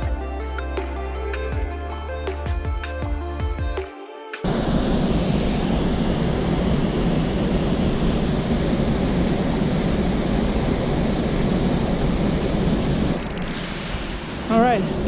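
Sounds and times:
waterfall rushing: 4.5 - 15.0.

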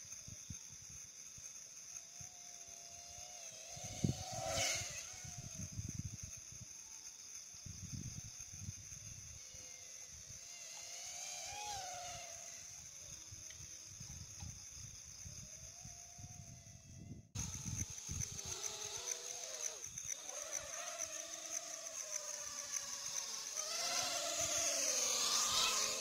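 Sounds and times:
faint wavering whine: 0.0 - 26.0
high insect drone: 0.0 - 26.0.

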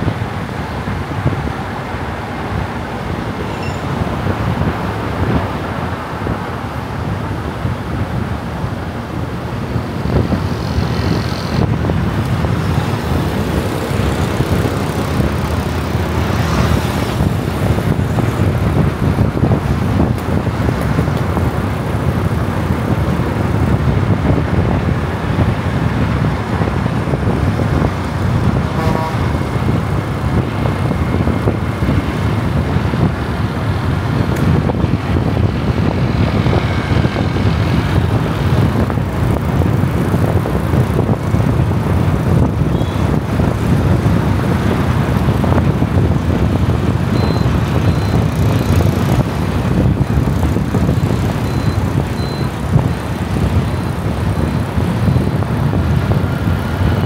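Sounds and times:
road and engine rumble: 0.0 - 57.0
short higher tone: 3.4 - 4.1.

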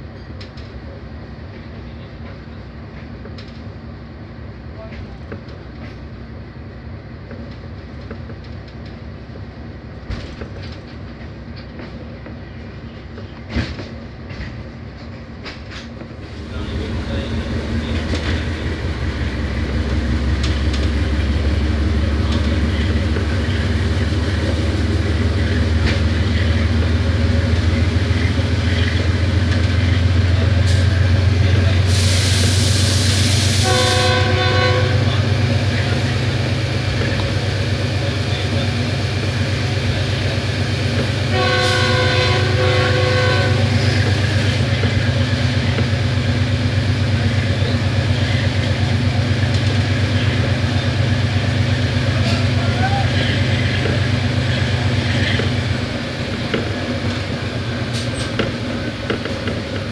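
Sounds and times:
diesel locomotive engine chugging: 0.0 - 59.9
air hiss: 31.9 - 33.6
locomotive horn blasts: 33.6 - 35.2, 41.2 - 43.8.

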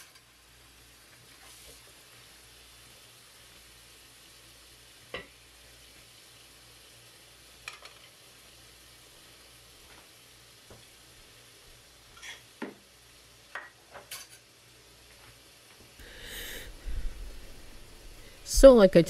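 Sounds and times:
dishes and cutlery clinking: 12.1 - 12.5, 13.6 - 14.5.

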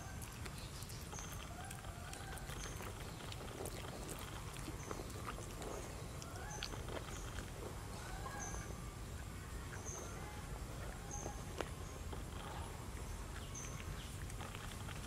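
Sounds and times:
faint lower bird calls: 4.8 - 14.2.

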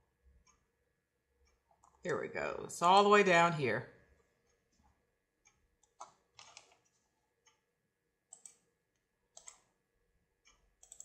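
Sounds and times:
computer mouse clicks: 1.4 - 2.0, 4.2 - 7.7, 8.3 - 9.8, 10.5 - 11.0.

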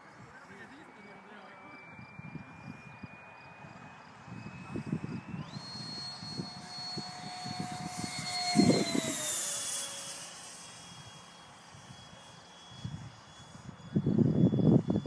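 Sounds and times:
model jet fan whine: 0.0 - 15.0
wind rumbling on microphone: 1.9 - 9.6, 12.7 - 15.0.

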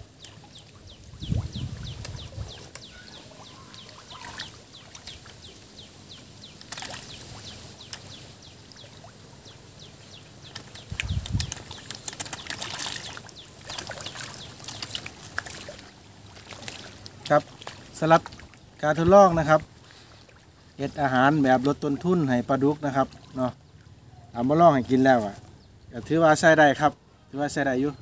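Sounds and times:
bird chirping: 0.0 - 15.1
fish splashing at water surface: 6.5 - 9.2, 10.4 - 18.6.

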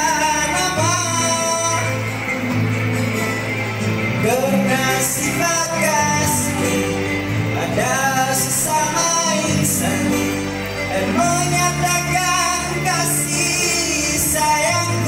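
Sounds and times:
man singing into microphone: 0.0 - 2.6, 4.1 - 15.0
backing track with bass line: 0.0 - 15.0.

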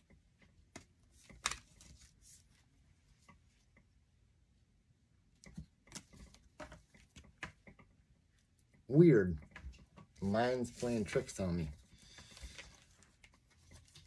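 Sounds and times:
cards flicking and tapping: 0.5 - 2.1.

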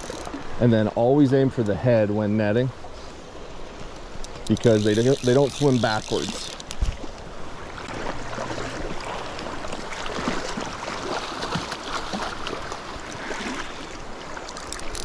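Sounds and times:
shallow creek running: 0.0 - 15.0
water splashing around legs: 4.4 - 15.0.

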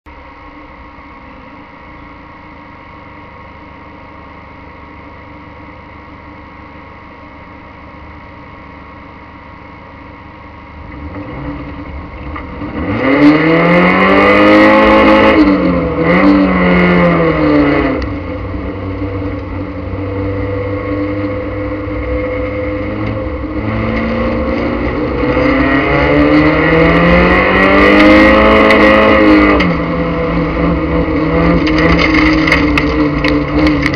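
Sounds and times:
race car engine revving: 10.7 - 33.9.

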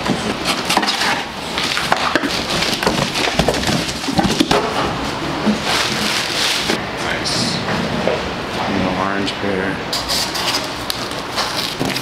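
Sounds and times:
cardboard rustling and tearing: 0.4 - 4.6, 5.5 - 6.8, 10.2 - 12.0.

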